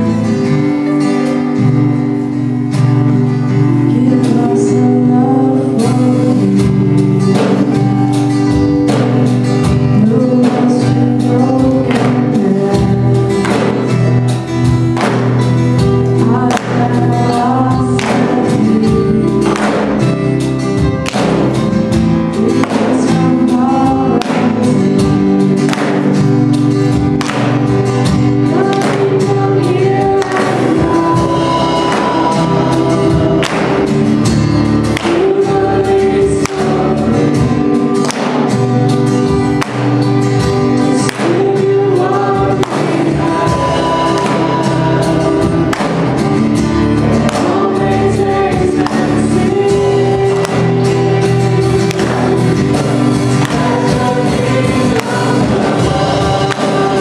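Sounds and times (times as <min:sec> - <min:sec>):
acoustic and electric guitars: 0:00.0 - 0:57.0
bass guitar: 0:00.0 - 0:57.0
drums keeping a steady beat: 0:00.0 - 0:57.0
woman singing lead: 0:02.6 - 0:14.4, 0:15.0 - 0:57.0
second female voice singing: 0:28.4 - 0:34.0, 0:35.0 - 0:38.5, 0:40.8 - 0:46.2, 0:47.0 - 0:57.0.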